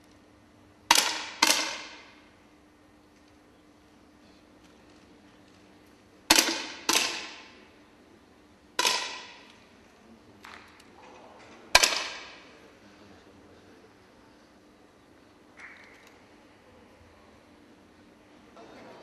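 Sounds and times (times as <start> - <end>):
air rifle shots: 0.9 - 2.2, 6.3 - 7.7, 8.8 - 9.5, 11.7 - 12.5.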